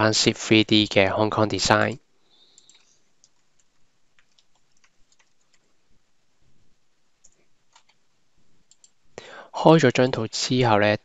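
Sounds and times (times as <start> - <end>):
computer keyboard typing: 2.5 - 5.7, 7.2 - 8.0, 8.6 - 9.0.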